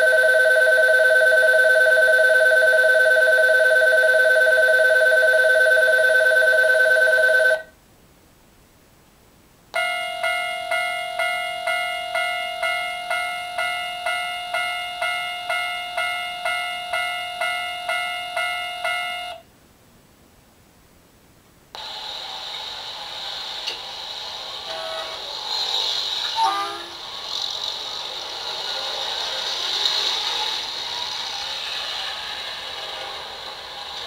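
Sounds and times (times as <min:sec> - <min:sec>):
level crossing bell dinging: 0:00.0 - 0:07.6, 0:09.8 - 0:19.4
faint hiss: 0:19.4 - 0:34.0
recorded town bustle: 0:21.8 - 0:34.0.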